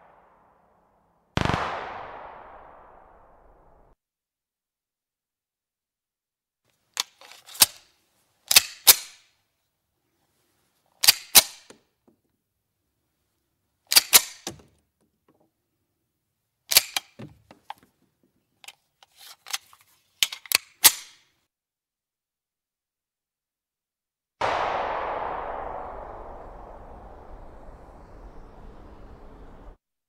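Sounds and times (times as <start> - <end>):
pistol slide metallic clacks: 7.0 - 7.9, 8.5 - 9.3, 11.0 - 11.8, 13.9 - 14.5, 16.7 - 17.2, 18.6 - 21.3.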